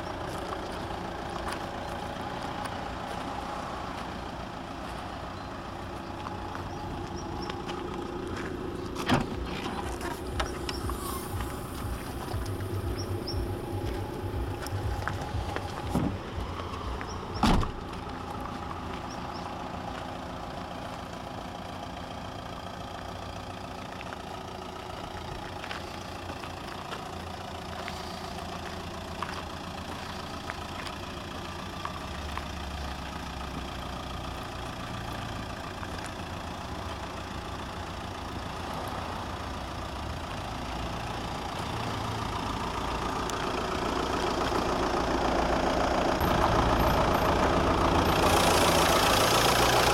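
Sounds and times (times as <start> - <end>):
diesel engine idling: 0.0 - 49.9
loud thump: 17.4 - 17.8.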